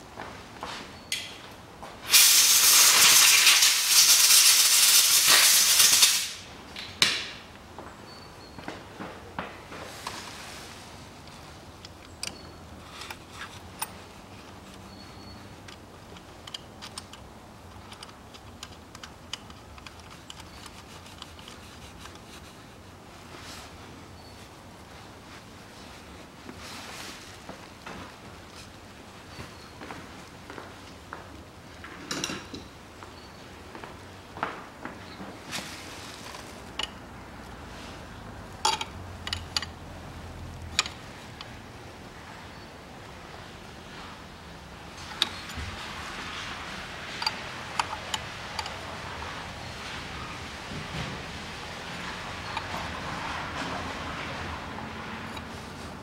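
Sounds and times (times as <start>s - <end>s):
spanner clinking on metal nuts: 38.6s - 39.8s, 47.2s - 48.8s.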